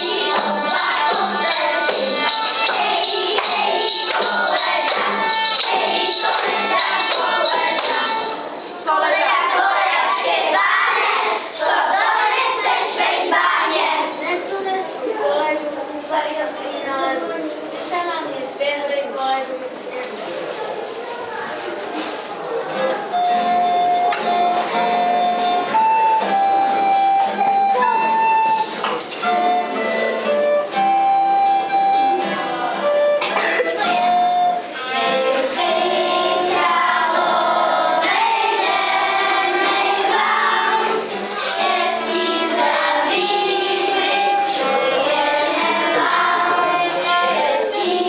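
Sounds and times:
acoustic guitar: 0.0s - 18.8s, 19.4s - 48.0s
children singing a carol: 0.0s - 19.1s, 22.0s - 48.0s
recorder melody: 22.8s - 37.3s.

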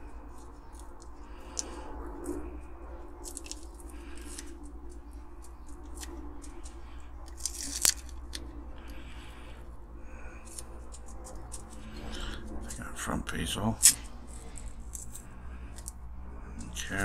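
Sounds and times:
masking tape peeling and crinkling: 0.0s - 12.8s, 13.6s - 17.0s.

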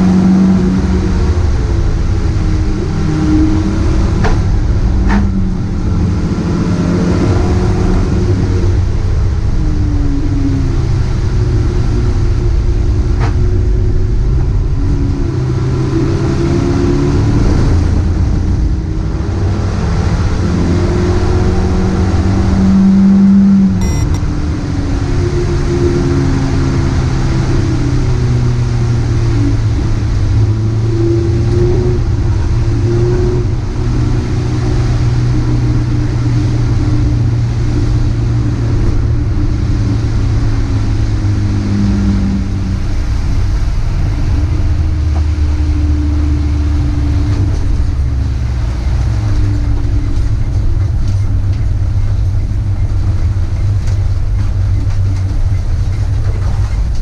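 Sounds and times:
road and wind noise: 0.0s - 57.0s
car engine running: 23.8s - 24.3s, 42.4s - 57.0s.

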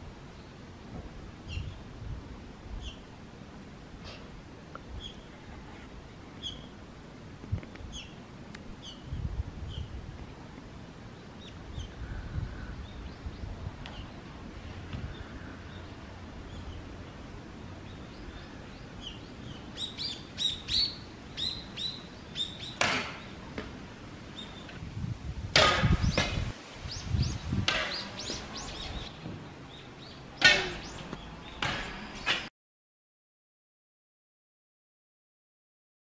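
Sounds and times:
small birds chirping: 1.4s - 1.9s, 2.7s - 3.1s, 4.1s - 6.8s, 7.6s - 8.2s, 8.8s - 10.0s, 11.1s - 23.5s, 24.3s - 24.8s, 25.9s - 32.4s.

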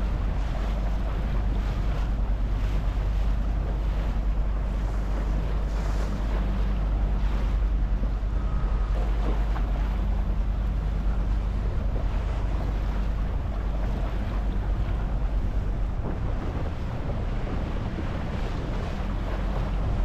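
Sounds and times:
boat motor humming: 0.0s - 20.0s
water washing against hull: 0.0s - 20.0s
wind buffeting microphone: 0.0s - 20.0s.

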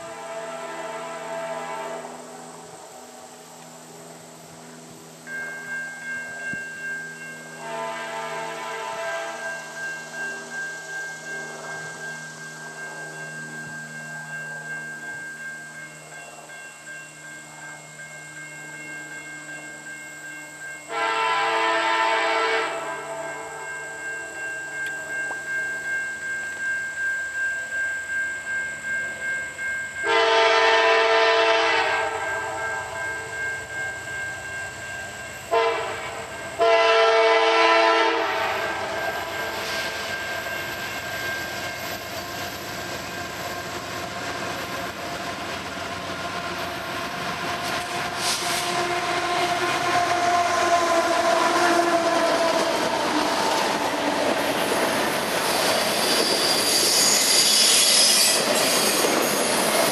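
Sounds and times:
locomotive air horn: 0.0s - 2.5s, 7.6s - 9.6s, 20.9s - 23.5s, 30.0s - 33.0s, 35.5s - 40.1s, 47.6s - 53.2s
crossing signal bells ringing: 0.0s - 59.9s
train rumbling past on rails: 0.0s - 59.9s.

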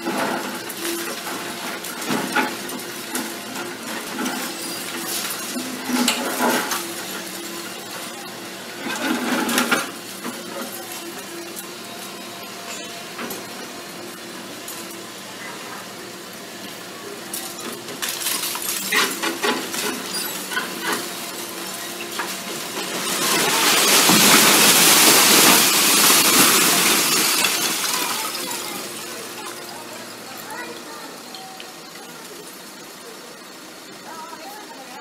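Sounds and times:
falling debris clinks and crashes: 0.0s - 15.2s, 17.2s - 32.8s
excavator diesel engine: 0.0s - 35.0s
building collapsing rubble crash: 17.3s - 30.9s
bucket breaking concrete: 22.2s - 28.8s.

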